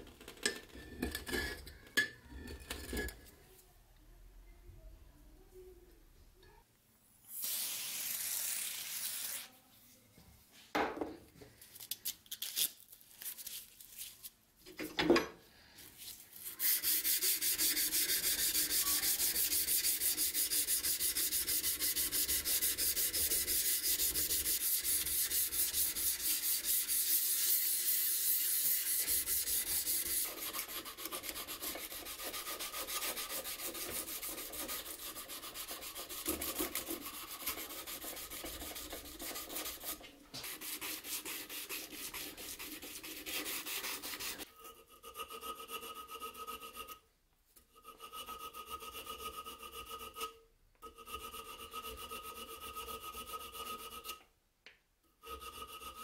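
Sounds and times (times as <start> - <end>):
knife blade being sanded by hand: 16.4 - 47.0, 47.8 - 54.2, 55.2 - 56.0.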